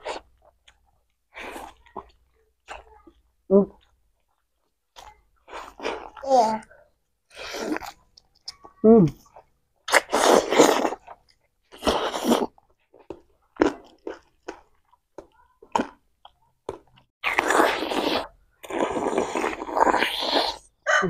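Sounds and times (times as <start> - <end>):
crunchy bite and chewing: 9.9 - 12.5, 16.7 - 21.0.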